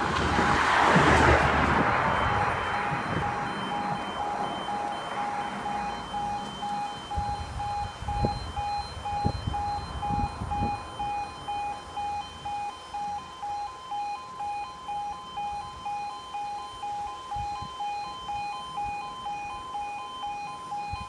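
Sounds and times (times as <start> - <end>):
car passing: 0.0 - 6.9
higher alarm tone: 0.0 - 21.0
level crossing alarm beeping: 0.0 - 21.0.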